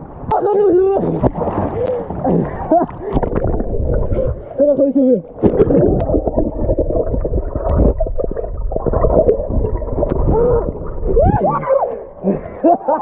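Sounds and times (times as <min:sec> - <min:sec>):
underwater rumbling and gurgling: 0:00.0 - 0:13.0.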